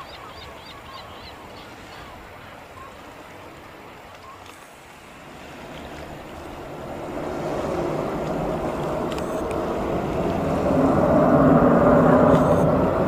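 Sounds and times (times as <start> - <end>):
jet airliner engines rushing: 5.0 - 13.0.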